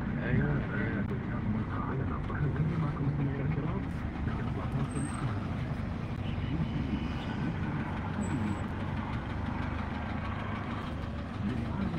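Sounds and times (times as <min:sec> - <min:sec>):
car engine rumble inside cabin: 0:00.0 - 0:11.9.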